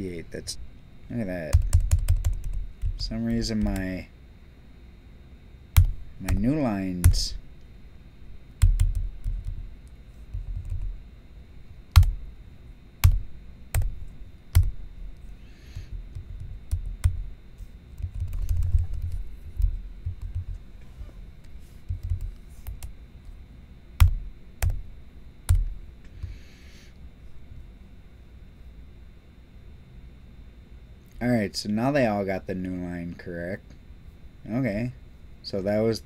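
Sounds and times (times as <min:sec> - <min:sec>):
typing on computer keyboard: 0:01.5 - 0:03.9, 0:08.6 - 0:09.5, 0:18.0 - 0:19.2, 0:21.9 - 0:22.8.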